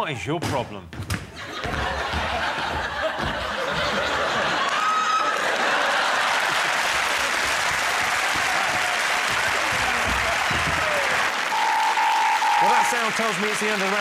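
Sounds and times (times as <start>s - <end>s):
audience applauding: 1.7s - 14.0s
electronic buzzer tone: 11.5s - 13.0s.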